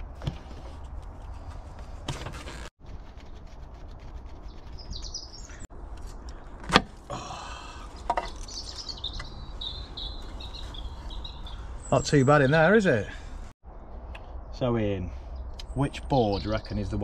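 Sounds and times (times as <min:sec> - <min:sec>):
birds chirping: 0:04.3 - 0:05.7, 0:06.3 - 0:17.0.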